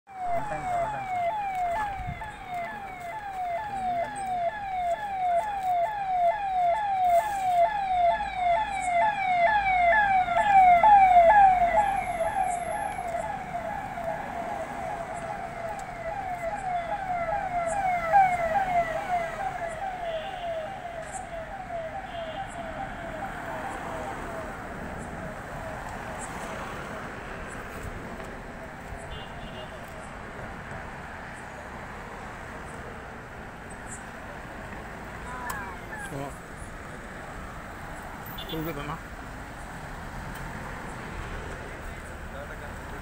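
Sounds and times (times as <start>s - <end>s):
electronic siren wailing: 0.1s - 26.2s.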